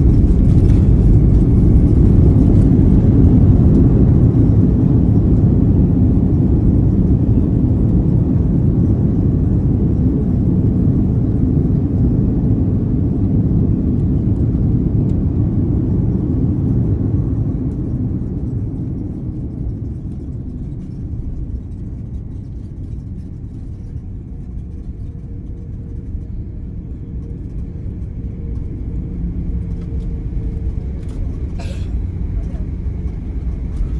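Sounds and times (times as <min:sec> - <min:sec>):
jet landing rumble in cabin: 0:00.0 - 0:33.9.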